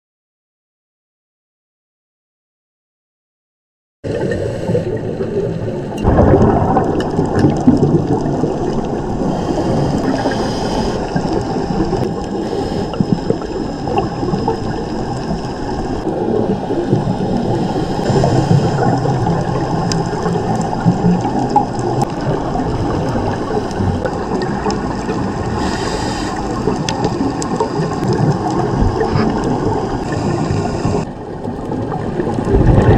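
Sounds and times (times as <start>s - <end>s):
gurgling exhaled bubbles: 4.1s - 32.9s
muffled underwater noise: 4.1s - 32.9s
regulator inhalation hisses: 9.2s - 15.7s, 17.2s - 19.1s, 25.4s - 28.0s, 30.0s - 31.1s.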